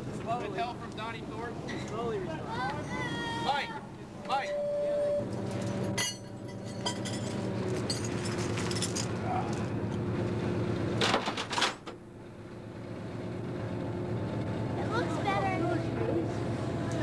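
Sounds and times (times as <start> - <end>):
sharp metallic clinks: 5.4 - 9.1
fire engine idling: 12.0 - 17.0.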